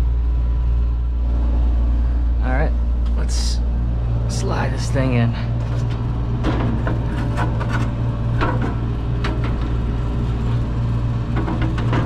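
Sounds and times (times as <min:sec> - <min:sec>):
low hum: 0:00.0 - 0:12.0
metal knocks and scrapes: 0:05.6 - 0:12.0.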